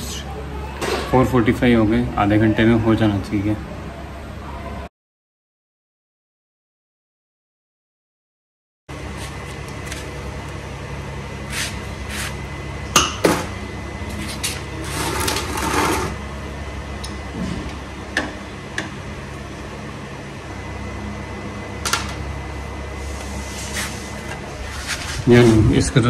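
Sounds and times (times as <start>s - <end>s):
steady low hum: 8.9s - 26.0s
rustling scrape: 11.5s - 12.4s, 14.2s - 16.2s, 23.0s - 25.7s.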